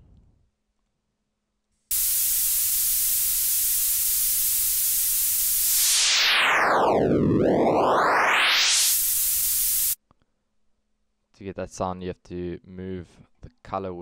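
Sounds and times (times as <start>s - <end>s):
synthesized white noise: 1.9s - 10.0s
phaser-like whoosh falling in pitch: 5.4s - 10.0s.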